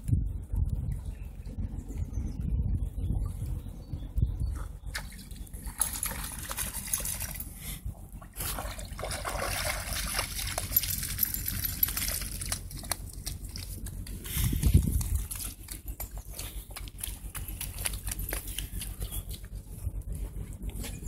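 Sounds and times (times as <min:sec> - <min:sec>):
water splashing and sloshing: 0:04.6 - 0:21.0.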